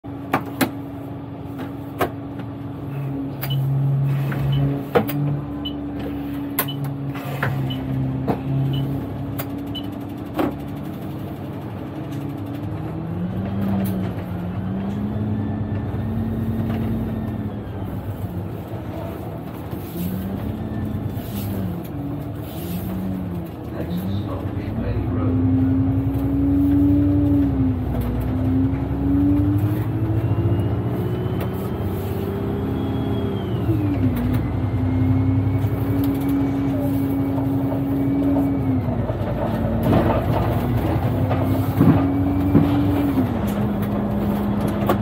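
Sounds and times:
bus engine idling: 0:00.0 - 0:45.0
clicks and rattles from cab: 0:09.3 - 0:12.8.

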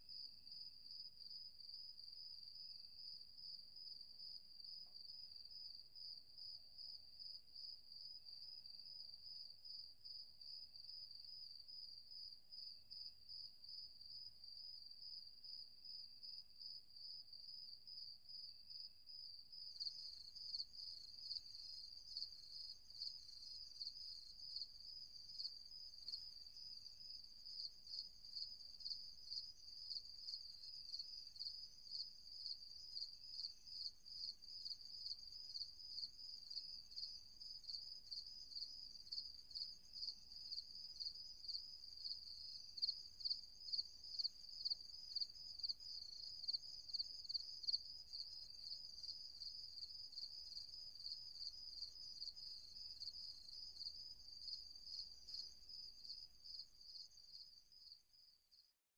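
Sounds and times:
crickets chirping: 0:00.1 - 0:58.6.

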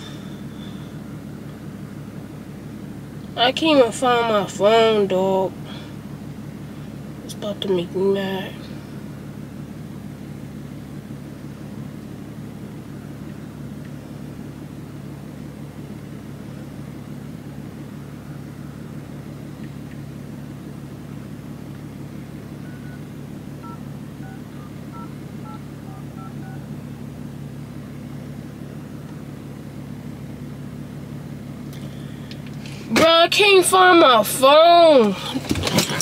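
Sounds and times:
car engine idling: 0:00.0 - 0:36.0
phone keypad tones: 0:22.6 - 0:23.0, 0:23.6 - 0:26.7.

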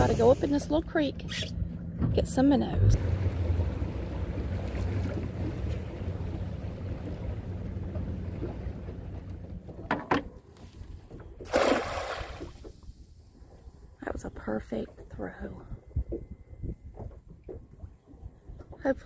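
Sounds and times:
small boat motor running: 0:00.0 - 0:11.5
cast net splashing on water: 0:11.4 - 0:12.7
water washing past: 0:11.4 - 0:12.8.

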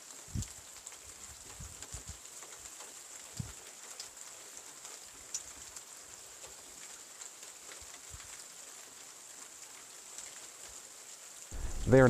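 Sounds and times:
light rain hiss: 0:00.0 - 0:12.0
raindrop ticks: 0:05.2 - 0:06.6, 0:11.5 - 0:12.0.

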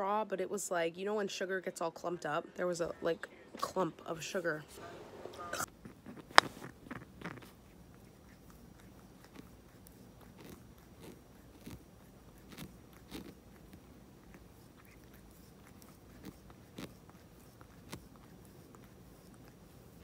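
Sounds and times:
cat licking fur: 0:04.3 - 0:20.0.

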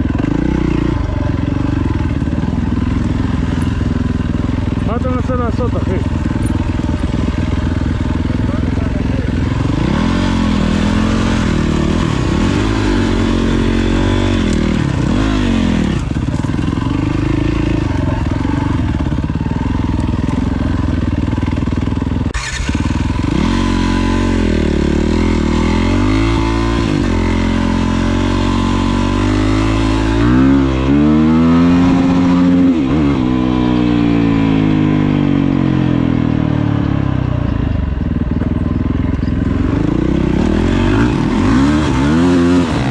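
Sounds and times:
dirt bike engine revving: 0:00.0 - 0:37.4, 0:38.2 - 0:42.9.

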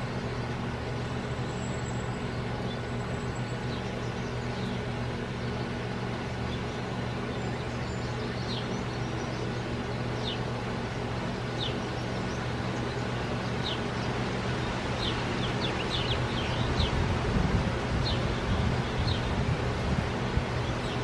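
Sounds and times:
songbirds chirping: 0:00.0 - 0:21.0
steady low hum: 0:00.0 - 0:21.0
wind rumble on microphone: 0:14.7 - 0:21.0.

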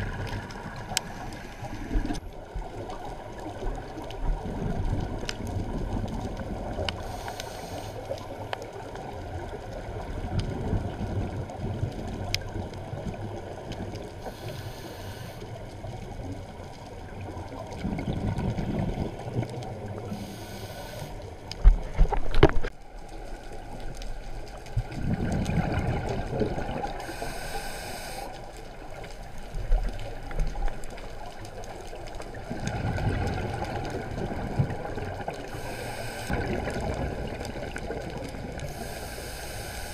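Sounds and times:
regulator hissing inhale: 0:07.0 - 0:08.2, 0:14.2 - 0:15.5, 0:20.1 - 0:21.3, 0:27.0 - 0:28.5, 0:35.4 - 0:36.4, 0:38.6 - 0:39.9
exhaled bubbles rushing: 0:17.1 - 0:20.2, 0:24.7 - 0:27.1, 0:31.8 - 0:35.6, 0:36.3 - 0:38.8.

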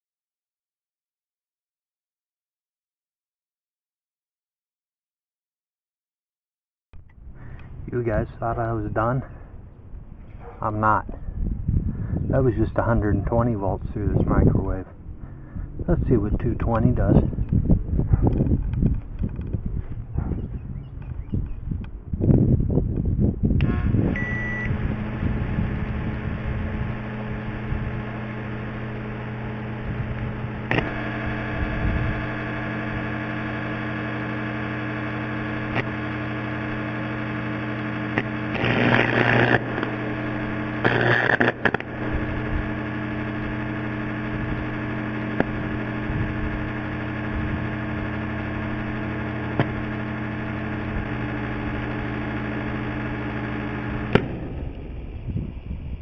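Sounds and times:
transformer humming loudly: 0:11.3 - 0:56.0
electrical arcing: 0:23.5 - 0:56.0.

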